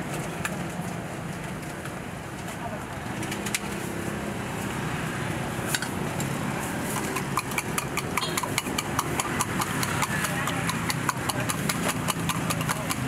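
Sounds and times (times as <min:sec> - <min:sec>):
utensil clinking on metal cups: 0:06.9 - 0:13.0.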